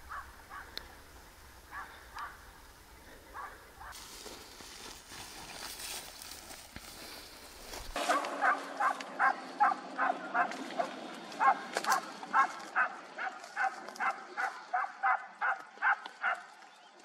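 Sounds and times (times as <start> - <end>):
dog barking: 0.0 - 0.8, 1.7 - 2.4, 3.3 - 3.9, 8.0 - 16.5
faint outdoor noise: 0.0 - 17.0.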